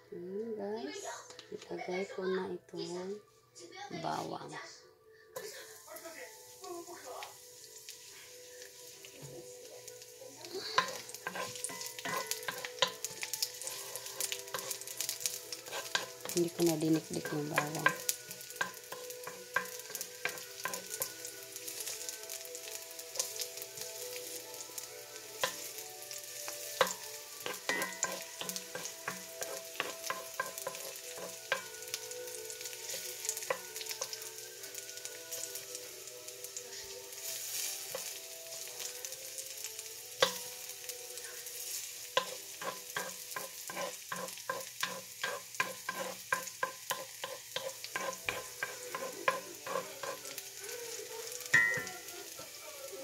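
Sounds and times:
garlic sizzling in hot oil: 5.4s - 53.0s
wooden spoon scraping a pan: 7.2s - 22.0s, 25.2s - 34.4s, 41.1s - 51.8s.

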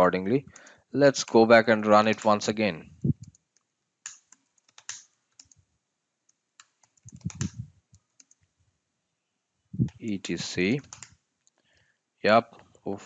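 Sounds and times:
computer keyboard typing: 0.5s - 2.5s, 3.1s - 5.6s, 6.6s - 8.5s, 10.8s - 11.1s.

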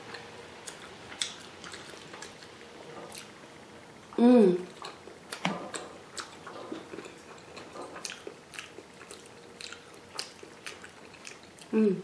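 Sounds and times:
close chewing with mouth smacks: 0.1s - 3.3s, 4.7s - 11.8s.

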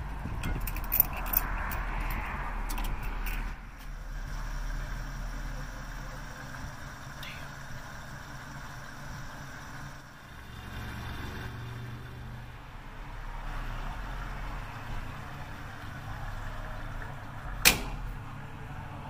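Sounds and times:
fuel pump humming: 0.0s - 12.2s.

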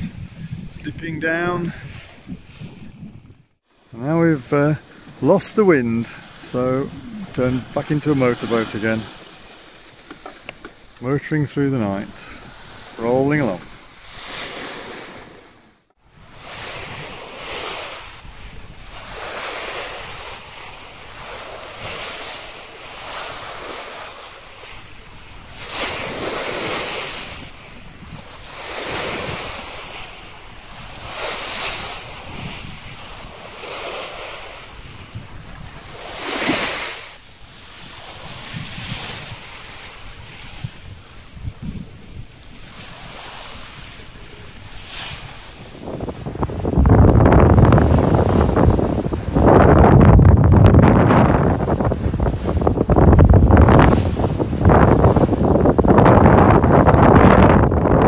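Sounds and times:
wind buffeting the microphone: 0.0s - 3.9s, 4.5s - 58.0s
water rushing along a hull: 0.0s - 58.0s.

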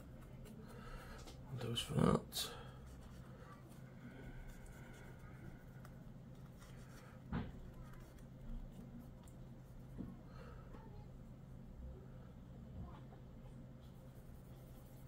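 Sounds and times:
low steady hum: 0.0s - 15.0s
faint rubbing and scraping: 2.4s - 11.0s.

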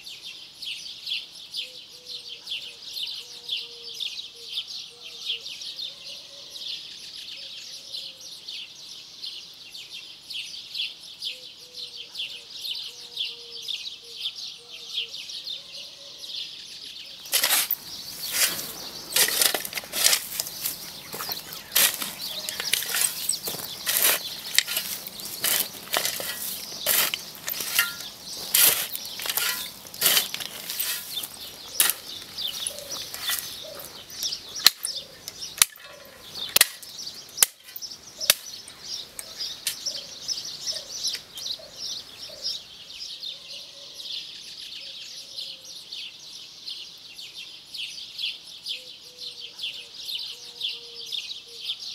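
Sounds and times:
birds chirping: 17.0s - 43.4s
hoe chopping stony earth: 17.3s - 38.6s.

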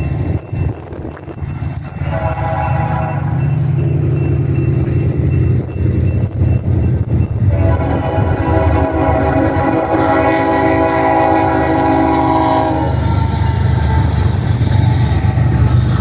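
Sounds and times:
locomotive horn blowing: 2.0s - 3.5s, 7.4s - 14.3s.

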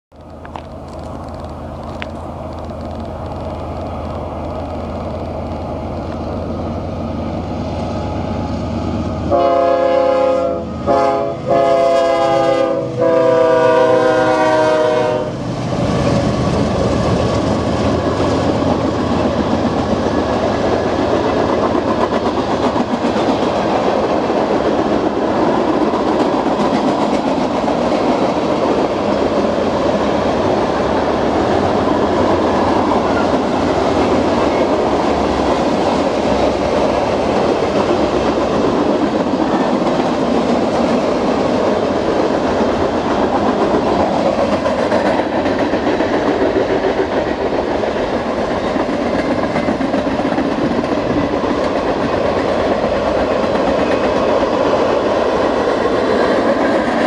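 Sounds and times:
locomotive engine rumble: 0.1s - 9.6s
train air horn blasts: 8.0s - 15.5s.

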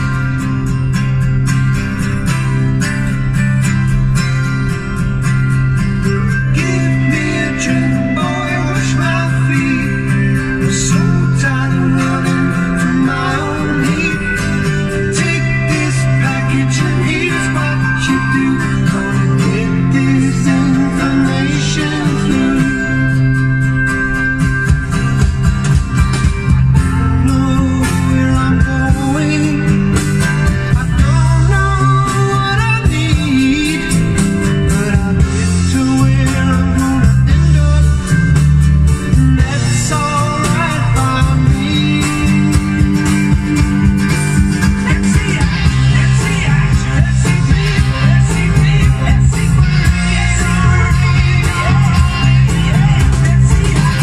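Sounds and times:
guitar-led music from car speakers: 0.0s - 54.0s.

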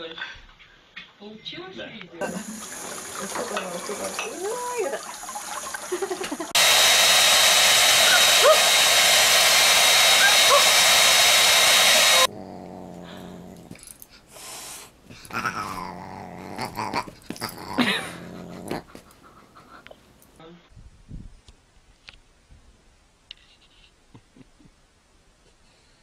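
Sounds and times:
tap water running: 2.2s - 12.3s
hair dryer blowing: 6.2s - 12.3s
dog growling and whining: 12.0s - 14.0s, 15.1s - 19.3s.

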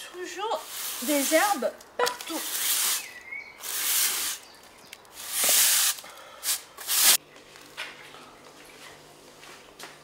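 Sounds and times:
broom sweeping stone paving: 0.2s - 4.5s, 5.2s - 7.2s.

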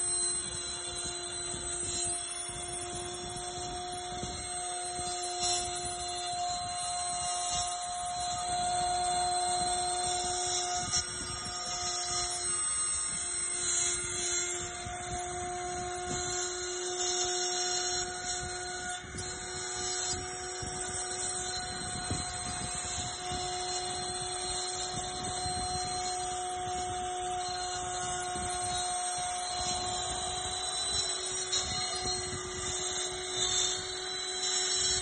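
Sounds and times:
bit cutting wood: 0.0s - 35.0s
router spindle whine: 0.0s - 35.0s.

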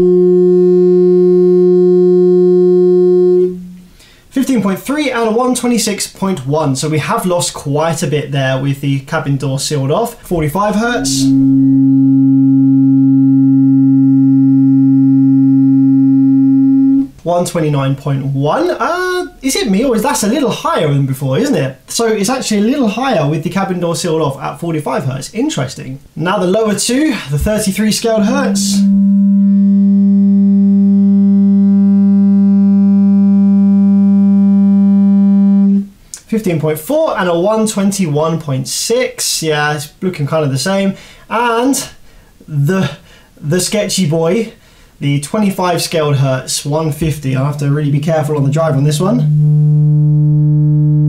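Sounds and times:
subwoofer test tone: 0.0s - 4.0s, 10.1s - 17.3s, 27.3s - 36.0s, 48.4s - 51.0s.

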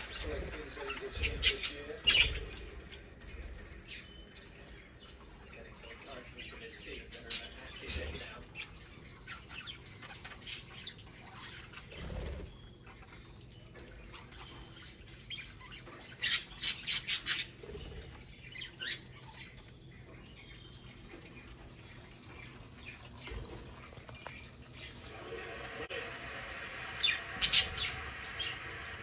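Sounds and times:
budgerigars chirping: 0.0s - 2.7s, 5.6s - 12.7s, 26.9s - 28.9s.

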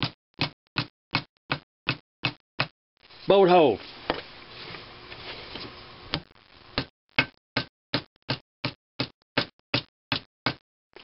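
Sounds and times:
soft rustle: 3.1s - 6.0s.

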